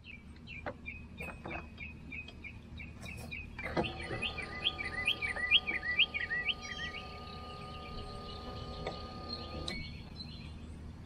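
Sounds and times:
songbird chirping: 0.0 - 11.0
electric motor humming: 3.7 - 9.8.

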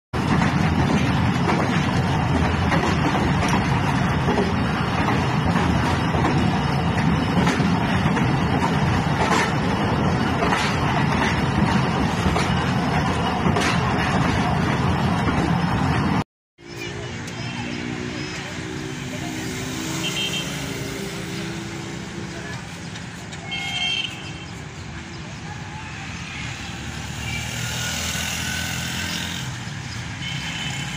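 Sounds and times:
wheels clicking over rail joints: 0.2 - 15.6
train wheels rumbling on rails: 0.2 - 30.9.

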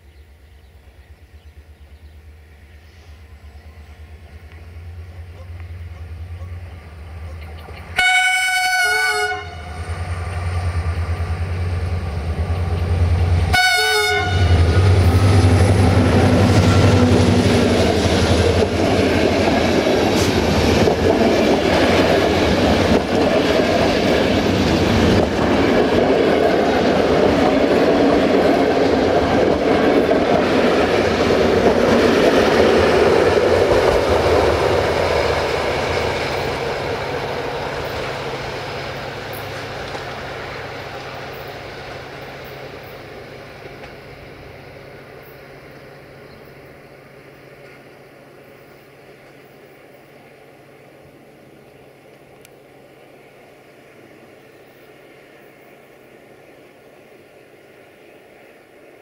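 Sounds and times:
train coaches rumbling and clattering: 0.7 - 56.7
locomotive horn blasts: 8.0 - 9.8, 13.5 - 15.2
locomotive engine running loud: 14.3 - 42.2.

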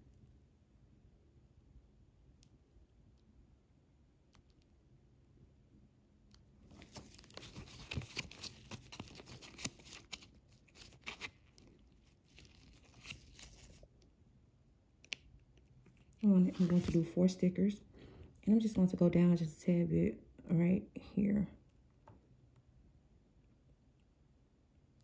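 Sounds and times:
sticker sheet crinkling: 6.6 - 13.9, 15.0 - 17.2
small crackles and clicks: 15.0 - 16.2.

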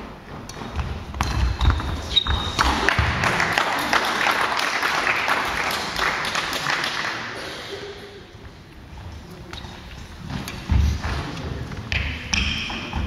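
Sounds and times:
shoe squeak: 1.6 - 2.7
hall noise and voices: 2.6 - 13.0.

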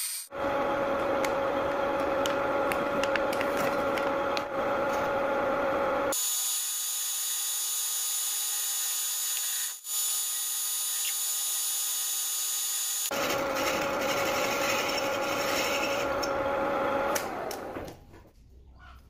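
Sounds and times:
lathe running: 12.9 - 17.8
lathe boring bar scraping metal: 13.1 - 16.5.

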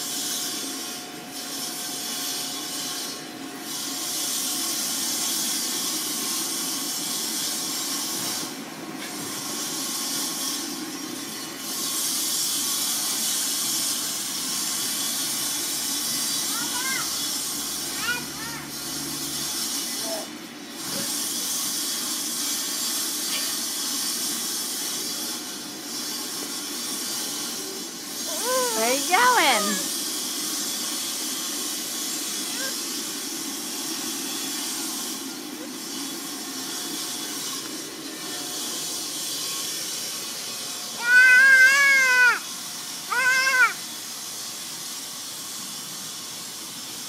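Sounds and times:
high-pitched vocal calls: 28.3 - 29.9, 41.0 - 42.4, 43.1 - 43.8.

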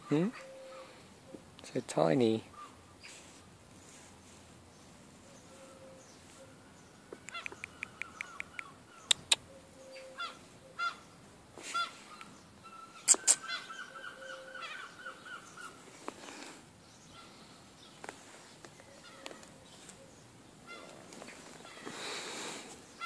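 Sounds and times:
short animal calls: 5.4 - 11.0.

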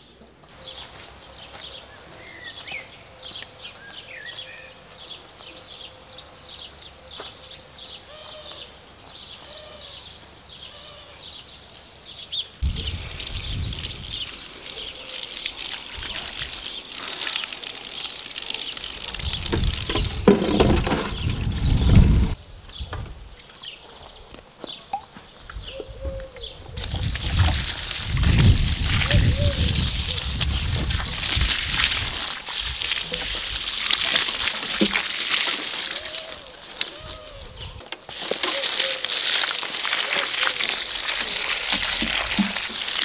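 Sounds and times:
birds chirping and singing: 0.5 - 27.1, 28.2 - 31.5, 36.0 - 37.9
rustling noise: 19.4 - 24.5.

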